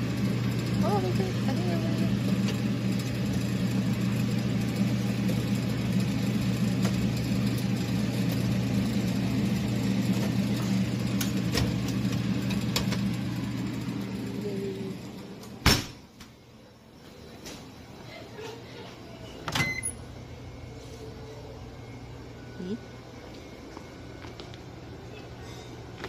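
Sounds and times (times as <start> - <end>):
refrigerator hum and fan: 0.0 - 26.0.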